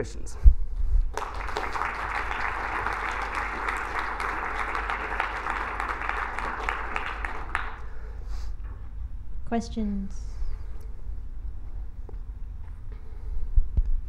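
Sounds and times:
audience applauding: 0:01.1 - 0:08.2.

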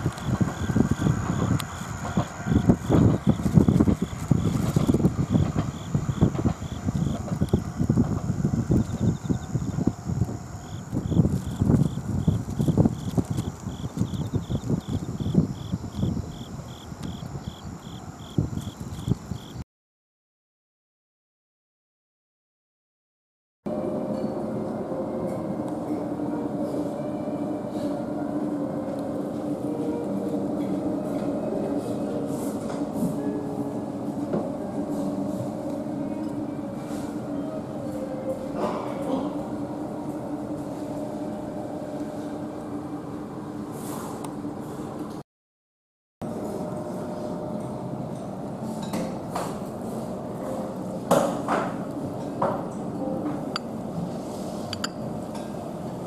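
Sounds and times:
low mechanical rumble with hum: 0:00.0 - 0:19.4.

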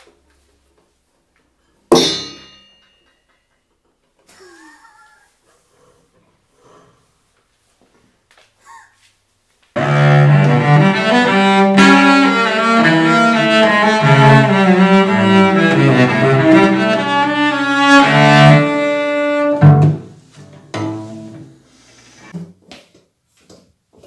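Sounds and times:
solo cello bowed melody: 0:09.8 - 0:20.0, 0:20.7 - 0:21.6.

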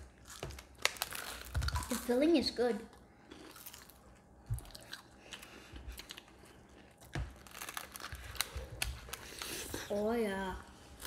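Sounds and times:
chewing crunchy pastry: 0:03.2 - 0:10.0.

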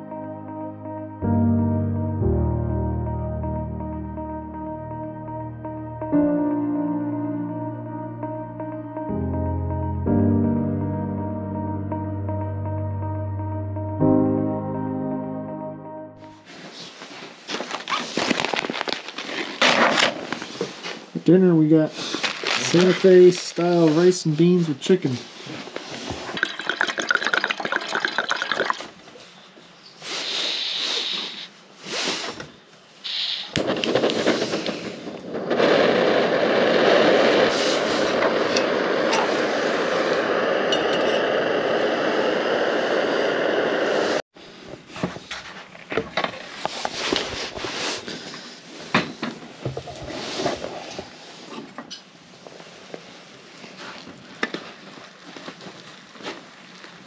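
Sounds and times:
stove flame hissing: 0:30.0 - 0:45.3, 0:46.4 - 0:57.0
cookware clinking: 0:40.7 - 0:41.3.

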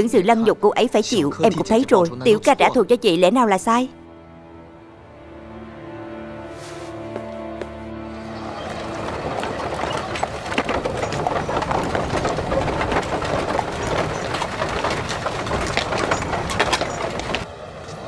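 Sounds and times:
horse hooves clip-clopping: 0:07.1 - 0:18.0
crowd murmuring: 0:08.2 - 0:17.4
short clattering knocks: 0:08.6 - 0:17.4.

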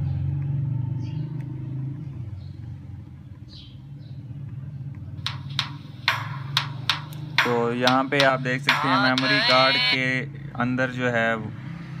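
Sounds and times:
sharp percussive hits: 0:05.2 - 0:09.9
music from small phone loudspeaker: 0:05.2 - 0:10.1.

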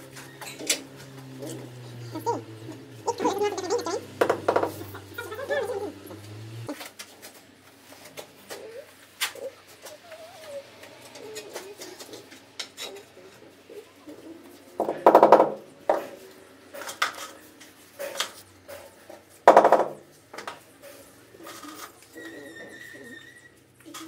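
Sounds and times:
floor tiles knocking and clicking: 0:19.5 - 0:20.6.

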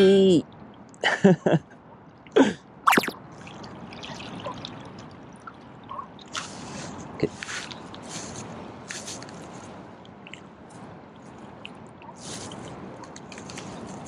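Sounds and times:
water lapping and trickling: 0:02.0 - 0:14.0.

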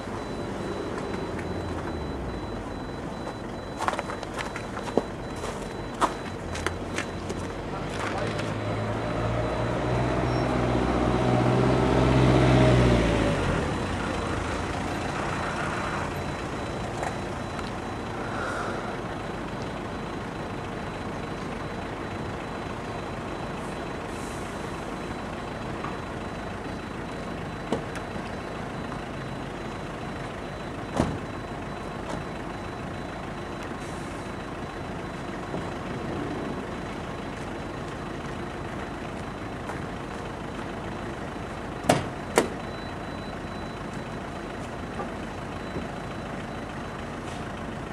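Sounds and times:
truck engine revving: 0:06.5 - 0:17.0.

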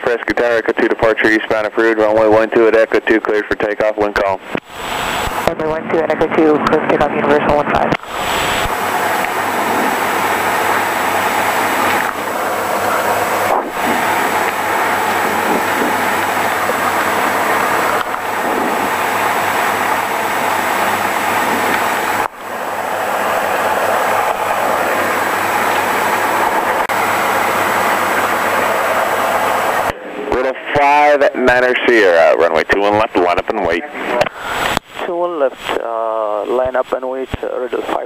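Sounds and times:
aircraft engine droning: 0:04.4 - 0:30.4.

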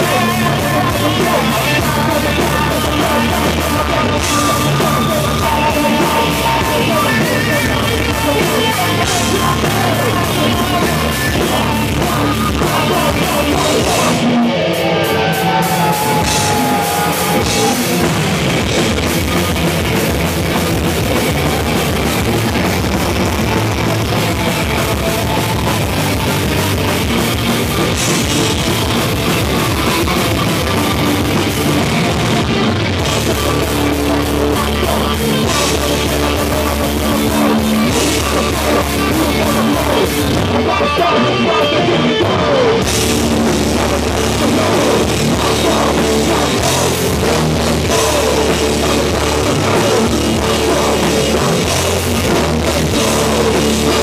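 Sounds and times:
distorted electric guitars: 0:00.0 - 0:54.0
fast drum kit: 0:00.0 - 0:54.0
shouted vocals: 0:12.7 - 0:18.4.

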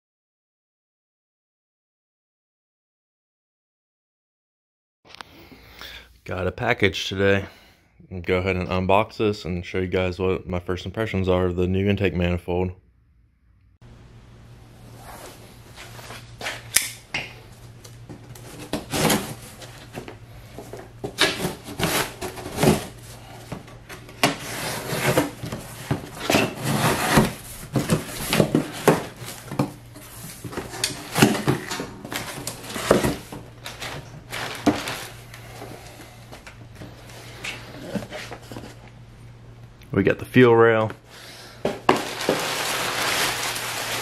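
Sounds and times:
packing paper crumpling: 0:30.1 - 0:35.4, 0:41.8 - 0:44.0.

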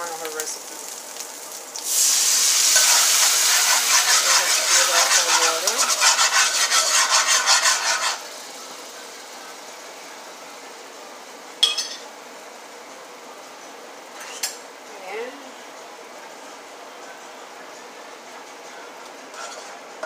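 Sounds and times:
liquid sizzling in hot pan: 0:00.0 - 0:15.1
metal spoon scraping pan: 0:02.7 - 0:08.2, 0:19.3 - 0:19.8.

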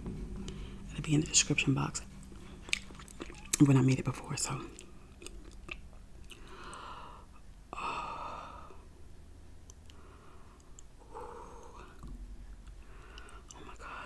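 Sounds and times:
person sighing and exhaling: 0:06.4 - 0:08.8.

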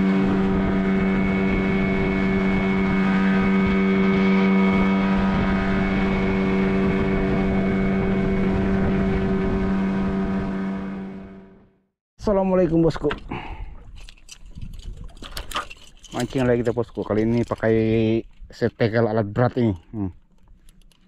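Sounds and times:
wind and water rushing: 0:00.0 - 0:11.1
motorboat engine humming: 0:00.0 - 0:11.8.

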